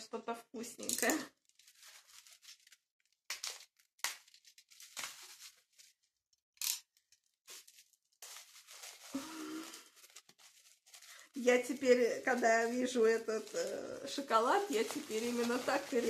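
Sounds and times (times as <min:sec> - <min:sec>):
packaging being torn open: 0:01.0 - 0:05.4
packaging rustling: 0:01.0 - 0:06.1, 0:06.9 - 0:16.0.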